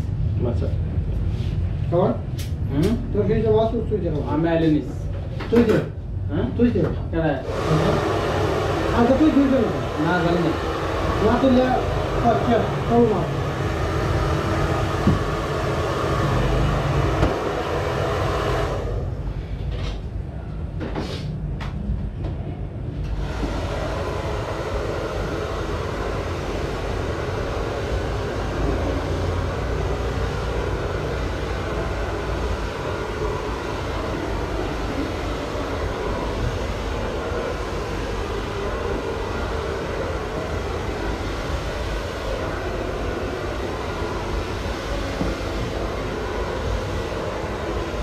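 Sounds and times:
hair dryer blowing: 7.4s - 19.3s, 23.1s - 48.0s.

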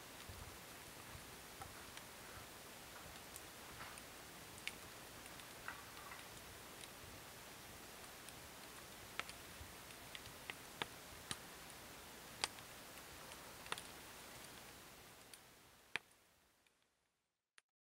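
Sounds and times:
steady hiss: 0.0s - 16.8s.

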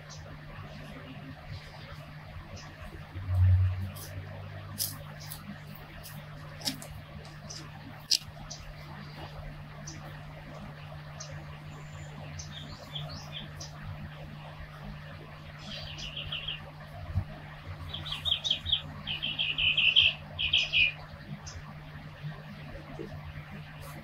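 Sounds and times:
steady low hum: 0.0s - 24.0s
small bird chirping: 11.2s - 13.8s, 15.6s - 16.7s, 17.8s - 21.6s.

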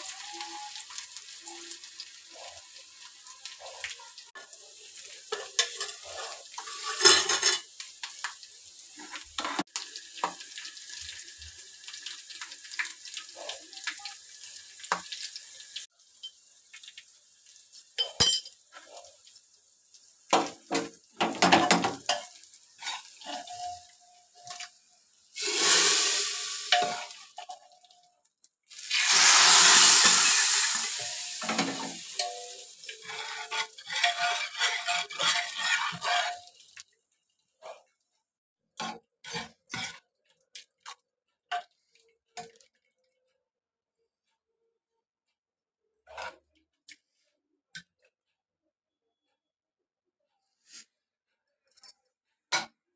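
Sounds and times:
spices frying in hot oil: 0.0s - 38.1s
spoon scraping a pan: 2.3s - 8.2s, 20.3s - 24.8s, 25.4s - 27.7s, 28.9s - 36.6s, 38.8s - 40.1s
loud bursts of sizzling: 25.3s - 27.2s, 28.8s - 33.3s.

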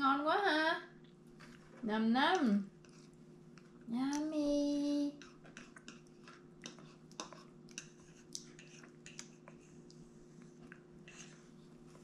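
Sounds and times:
baby chewing and smacking: 5.2s - 11.3s.

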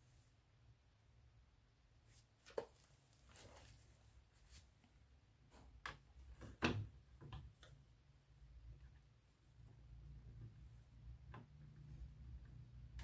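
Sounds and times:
clicks and knocks among cables: 5.5s - 7.9s.

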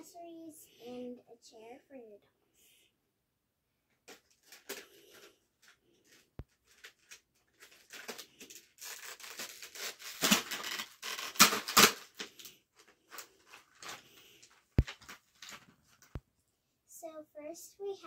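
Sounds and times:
plastic bag crinkling: 4.0s - 16.2s.

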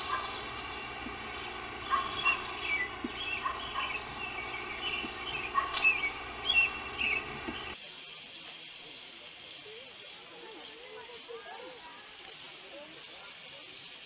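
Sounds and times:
steady hiss: 0.0s - 7.8s.

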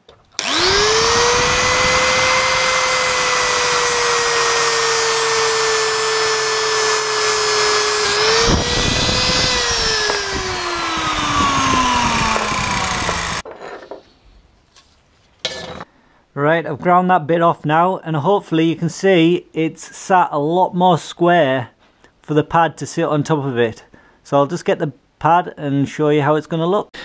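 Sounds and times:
angle grinder grinding metal: 0.0s - 13.5s.

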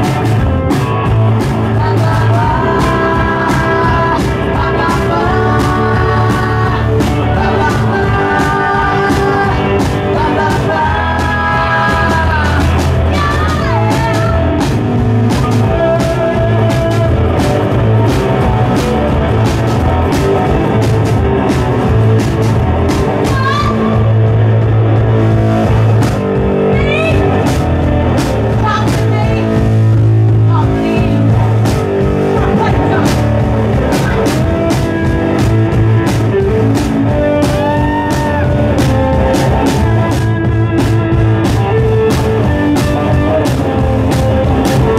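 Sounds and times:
rock and roll band playing: 0.0s - 44.9s
person singing: 1.4s - 18.9s, 32.2s - 40.9s.

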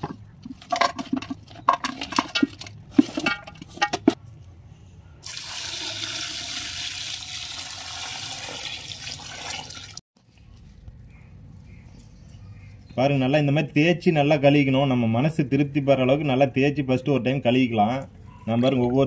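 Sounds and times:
water pouring into vessel: 5.2s - 10.0s.

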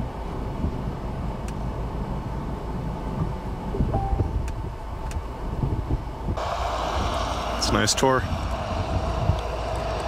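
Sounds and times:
uneven low rumble: 0.0s - 10.0s
brief high tone: 3.8s - 4.4s.

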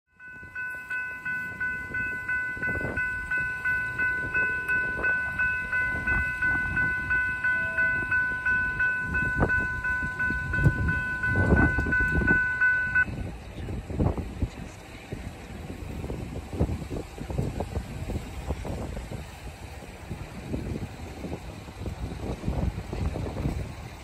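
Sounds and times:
crossing warning bell ringing: 0.1s - 13.4s.

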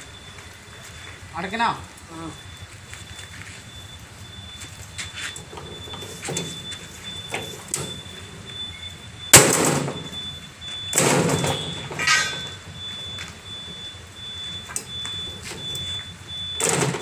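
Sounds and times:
metal mesh panels clanging: 10.9s - 12.6s, 16.6s - 17.0s.

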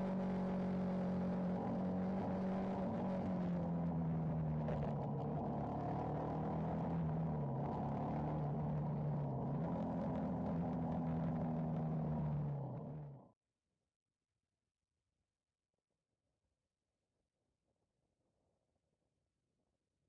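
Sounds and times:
motorcycle engine while riding: 0.0s - 13.3s.

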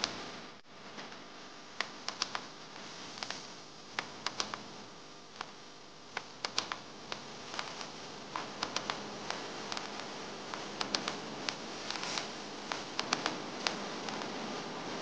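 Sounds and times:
steady hiss: 0.0s - 15.0s
small parts clicking in fingers: 1.8s - 2.5s, 4.0s - 4.6s, 6.2s - 14.3s.

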